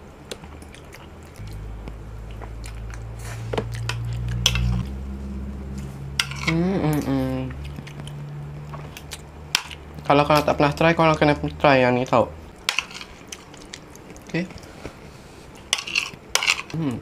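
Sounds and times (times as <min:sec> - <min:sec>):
low steady hum: 0:00.0 - 0:17.0
chewing: 0:00.3 - 0:04.9, 0:05.7 - 0:10.1, 0:12.5 - 0:16.2
person humming mmm: 0:01.4 - 0:05.0, 0:06.4 - 0:07.9, 0:16.7 - 0:17.0.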